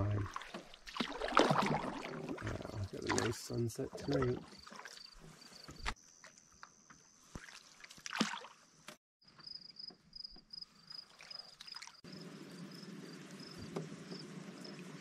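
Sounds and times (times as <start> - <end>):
soft water sounds: 0.0 - 9.0, 10.7 - 15.0.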